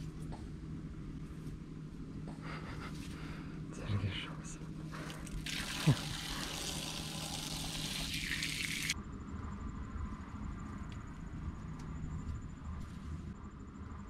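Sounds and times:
faint outdoor ambience: 0.0 - 14.0
outdoor shower water running: 5.0 - 9.0.

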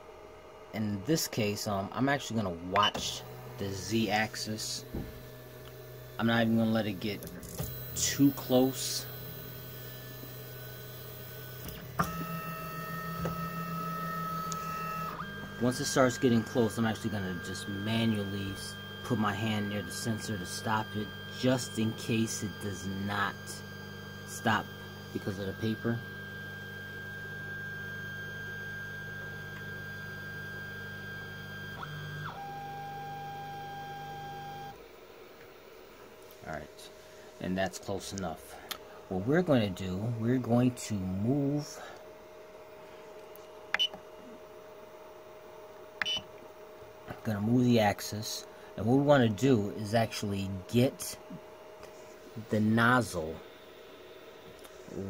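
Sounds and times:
stepper motors whining: 2.8 - 34.8.

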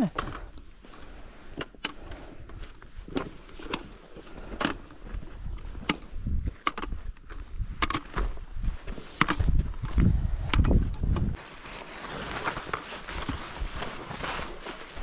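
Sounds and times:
trekking pole tips clicking: 0.1 - 11.4
footsteps on gravelly path: 2.5 - 15.0.

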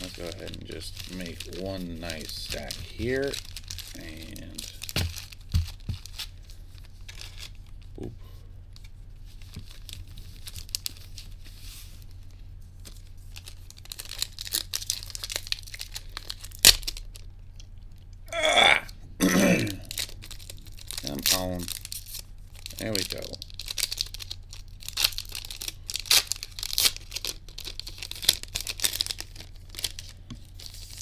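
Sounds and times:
foil wrappers crinkling and tearing: 0.0 - 8.0, 8.8 - 17.3, 19.4 - 31.0
low throaty vocal sounds: 18.3 - 19.9.

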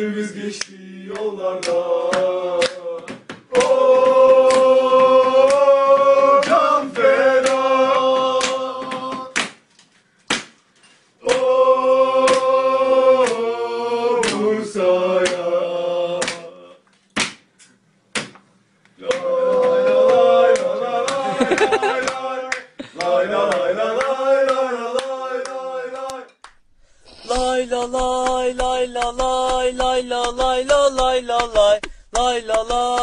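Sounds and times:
crowd chanting: 0.0 - 9.3, 11.2 - 16.7, 19.0 - 26.3
sharp beats: 26.5 - 33.0.

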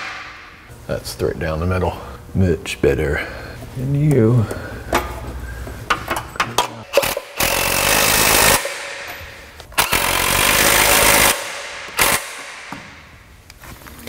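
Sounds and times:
impact wrench bursts: 6.9 - 13.0.

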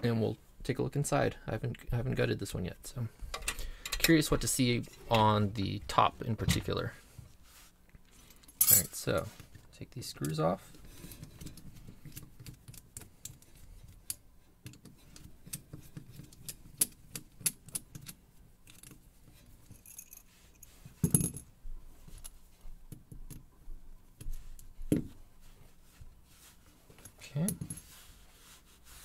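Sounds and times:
metal lock parts clinking: 14.7 - 19.0, 19.6 - 20.3.

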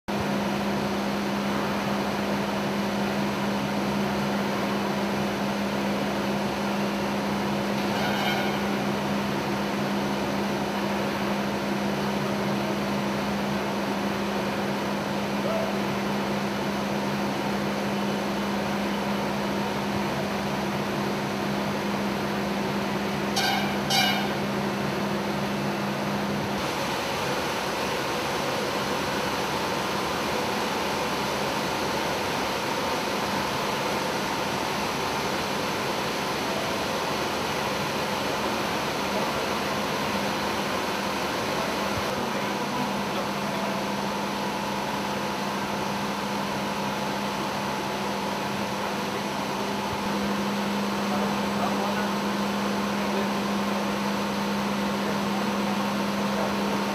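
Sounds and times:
industrial machinery hum and hiss: 0.1 - 56.9
short high-pitched tones: 23.4 - 24.5.

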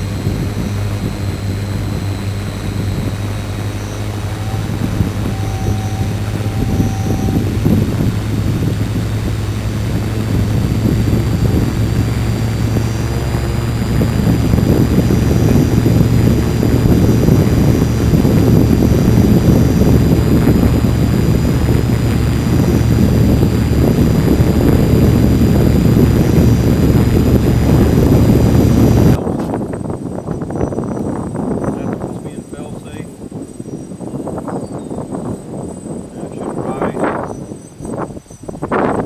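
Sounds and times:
drone motors humming and whining: 0.0 - 39.0.

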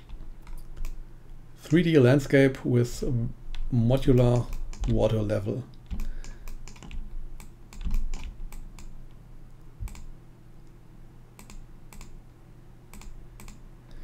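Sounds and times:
mouse and keyboard clicks: 5.8 - 8.9, 11.4 - 12.2, 12.9 - 13.6.

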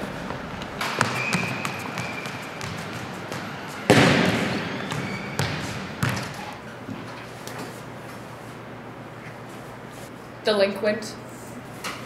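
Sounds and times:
ball bouncing on gym floor: 0.3 - 6.6.

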